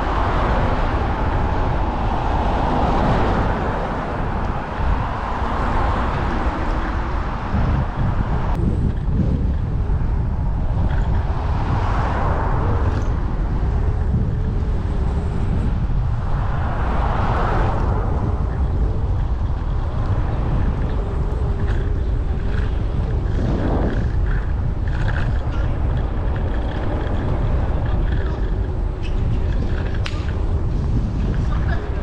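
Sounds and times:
tyre and road noise: 0.0s - 32.0s
wind rumble on microphone: 0.0s - 32.0s.

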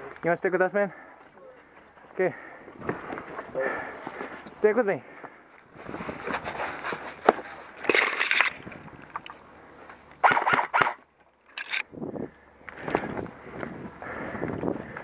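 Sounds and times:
gear rattling: 7.9s - 8.6s, 11.5s - 11.9s.

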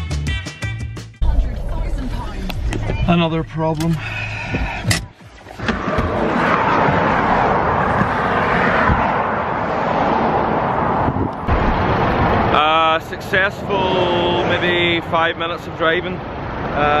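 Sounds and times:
road traffic rushing past: 3.9s - 17.0s.

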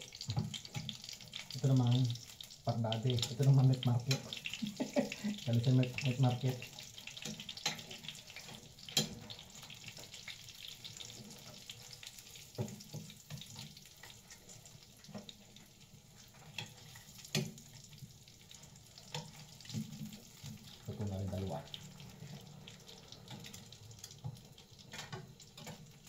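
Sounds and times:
food sizzling in a frying pan: 0.0s - 26.0s
metal tongs clicking against pan: 2.9s - 4.6s, 6.0s - 9.4s.

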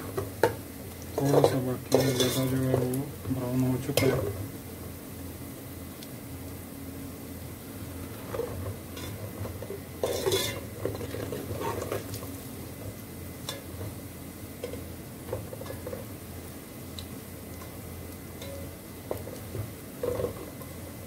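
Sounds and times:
onions frying in oil: 0.0s - 21.0s
steady low hum: 0.0s - 21.0s
spoon stirring onions in pot: 8.3s - 12.2s.

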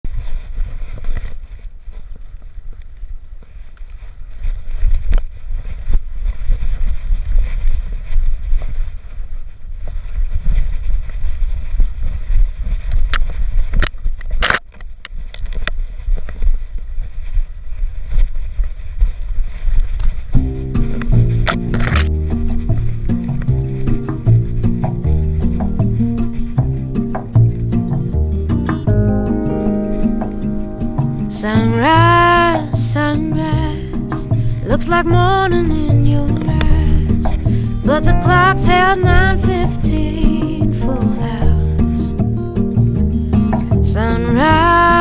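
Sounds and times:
sharp clicks or scrapes: 12.8s - 16.5s, 19.5s - 28.9s
wind buffeting: 16.0s - 45.0s
low rumble: 20.3s - 45.0s.

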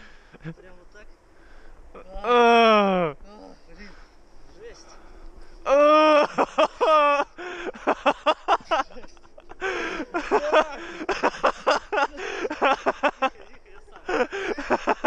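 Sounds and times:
men laughing: 0.0s - 0.8s, 2.3s - 3.2s, 5.6s - 15.0s
men shouting: 2.0s - 4.1s, 5.6s - 15.0s
man yelling: 2.2s - 3.2s, 10.2s - 10.9s.

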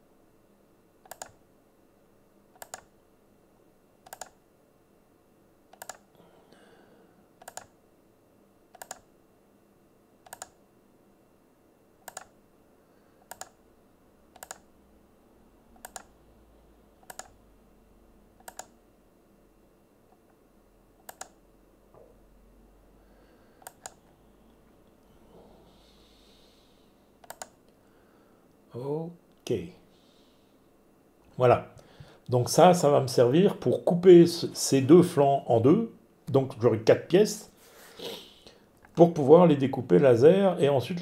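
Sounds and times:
computer mouse button clicking: 1.0s - 1.4s, 2.6s - 2.9s, 4.0s - 4.4s, 5.7s - 6.0s, 7.4s - 7.7s, 8.8s - 9.1s, 10.2s - 10.6s, 12.0s - 12.3s, 13.2s - 13.6s, 14.3s - 14.6s, 15.8s - 16.1s, 17.0s - 17.3s, 18.4s - 18.7s, 21.0s - 21.4s, 27.2s - 27.5s.

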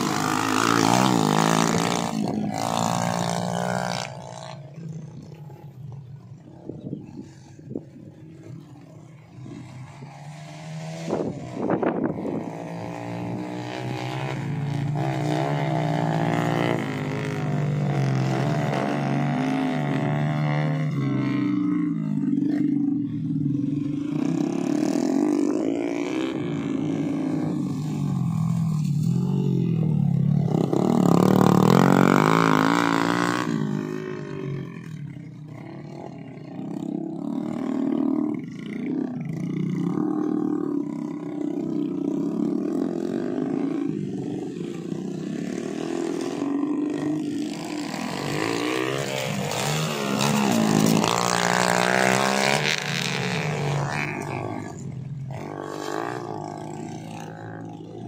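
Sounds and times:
small motorcycle engines revving: 0.0s - 58.0s.

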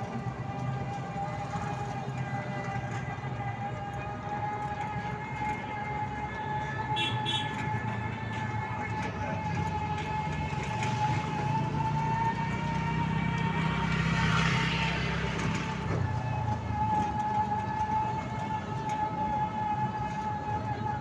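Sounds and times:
low road rumble: 0.0s - 21.0s
vehicle motor whine: 0.0s - 21.0s.

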